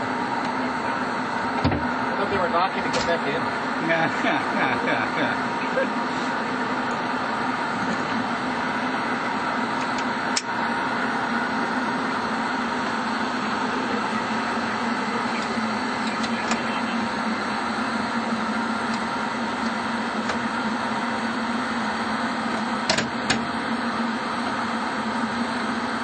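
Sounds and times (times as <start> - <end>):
ventilation hum and hiss: 0.0 - 26.0.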